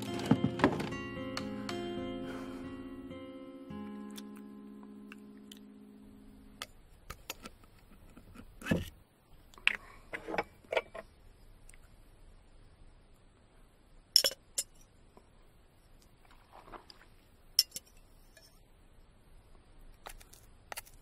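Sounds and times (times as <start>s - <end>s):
held music chord: 0.0s - 6.6s.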